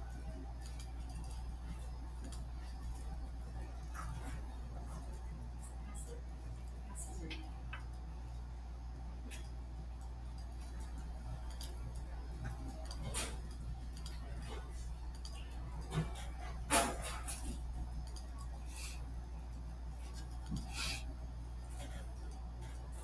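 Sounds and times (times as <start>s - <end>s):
steady low hum: 0.0s - 23.0s
light clicks and taps: 6.6s - 8.4s.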